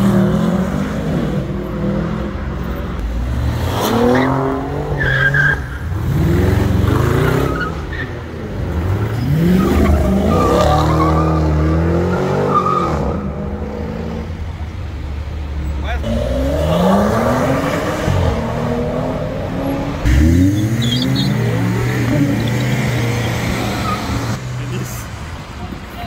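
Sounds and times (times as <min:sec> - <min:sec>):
car engines accelerating: 0:00.0 - 0:26.0
tire squeal: 0:03.8 - 0:06.0, 0:07.2 - 0:08.4, 0:09.1 - 0:13.6, 0:19.6 - 0:24.4.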